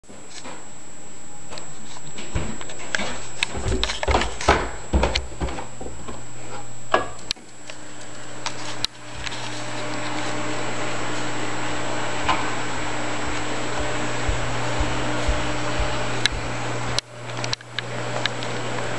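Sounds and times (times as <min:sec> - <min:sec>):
aquarium pumps humming: 0:00.0 - 0:18.9
footsteps going down stairs: 0:01.5 - 0:06.2, 0:13.2 - 0:17.0.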